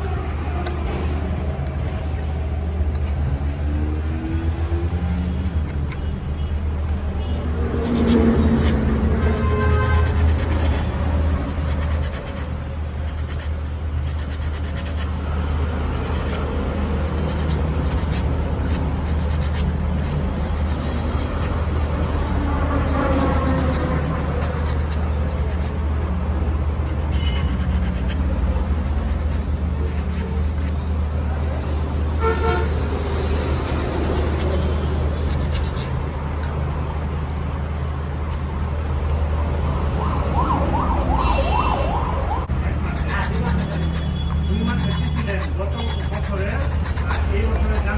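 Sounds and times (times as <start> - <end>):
road traffic rumble: 0.0 - 47.9
sandpaper scraping metal: 7.7 - 21.6, 23.0 - 25.8, 26.8 - 30.8, 33.2 - 36.0, 42.6 - 47.9
siren wailing: 40.0 - 42.5.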